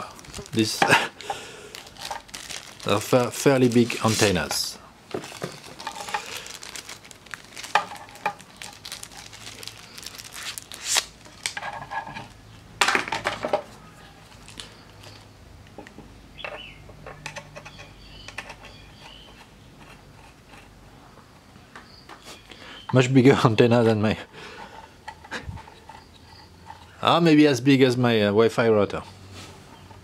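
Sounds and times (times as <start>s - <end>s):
plastic wrapping rustling: 0.0s - 12.4s, 14.2s - 15.3s.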